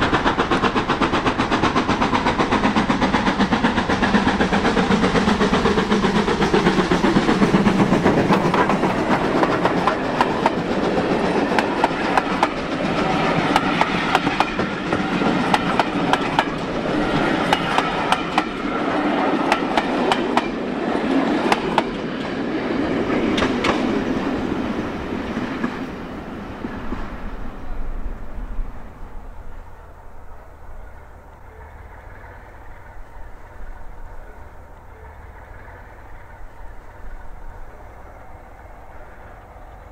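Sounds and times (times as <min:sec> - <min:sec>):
train wheels clicking over rail joints: 0:00.0 - 0:27.3
steam locomotive exhaust beats: 0:00.0 - 0:39.9.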